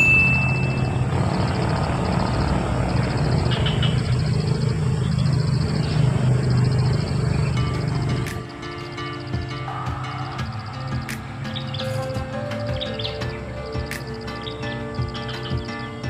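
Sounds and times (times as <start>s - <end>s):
engine droning: 0.0s - 16.0s
faint high chirping: 0.0s - 16.0s.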